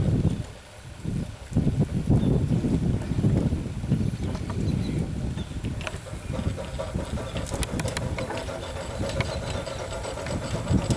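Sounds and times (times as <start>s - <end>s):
steam engine rumbling: 5.1s - 10.9s.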